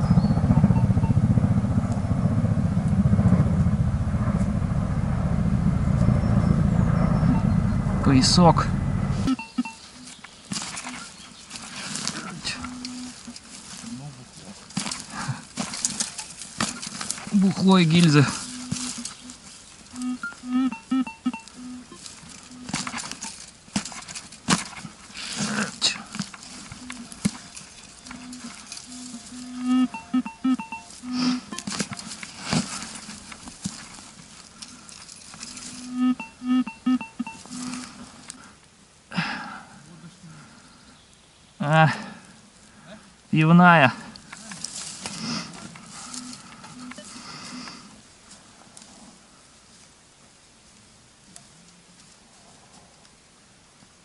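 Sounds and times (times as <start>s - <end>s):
metal detector beeps: 0.0s - 1.3s, 7.0s - 7.8s, 9.2s - 11.2s, 12.4s - 13.2s, 17.8s - 23.4s, 26.6s - 31.8s, 35.5s - 38.0s, 46.0s - 47.2s
low fluttering rumble: 0.0s - 9.3s
earth scraping rustle: 5.9s - 20.8s, 21.4s - 30.0s, 30.6s - 36.0s, 37.3s - 38.6s, 43.4s - 53.2s.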